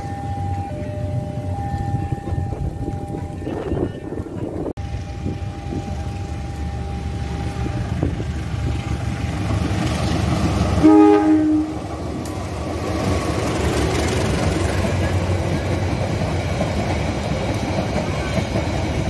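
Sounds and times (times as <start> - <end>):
train rumble: 0.0 - 19.0
locomotive horn blast: 10.8 - 11.9.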